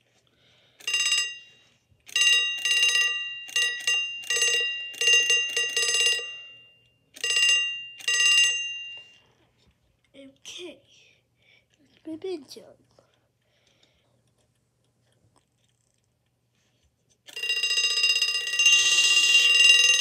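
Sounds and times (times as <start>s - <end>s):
alarm clock bell ringing: 0.8s - 9.3s, 17.3s - 20.0s.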